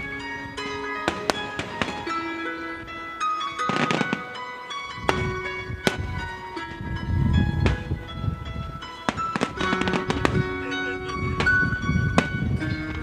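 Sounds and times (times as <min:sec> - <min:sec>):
music with long held notes: 0:00.0 - 0:13.0
fireworks bangs: 0:01.0 - 0:02.2, 0:03.6 - 0:04.4, 0:05.0 - 0:06.0, 0:09.1 - 0:10.6, 0:11.4 - 0:12.5
fireworks crackling: 0:01.0 - 0:02.2, 0:03.6 - 0:04.4, 0:09.1 - 0:12.6.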